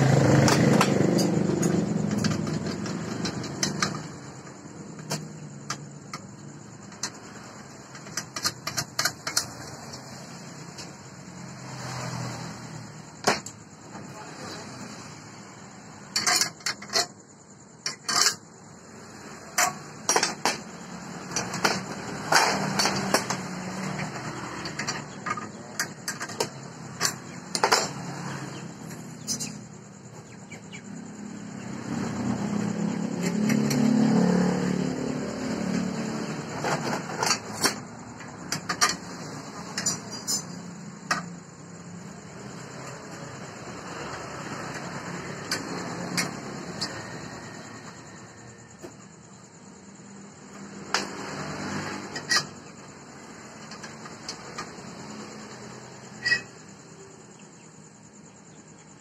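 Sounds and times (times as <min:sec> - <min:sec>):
steel parts clinking: 0:38.5 - 0:41.3.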